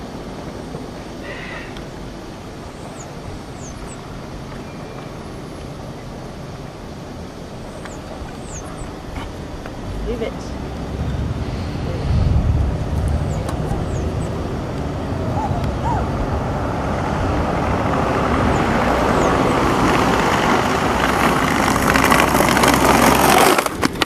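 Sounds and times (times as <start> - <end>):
road traffic: 0.0 - 24.0
skateboard wheels rolling: 10.5 - 24.0.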